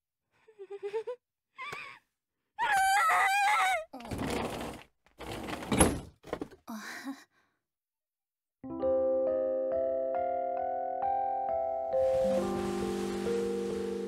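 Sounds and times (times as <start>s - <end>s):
woman squealing: 2.6s - 4.0s.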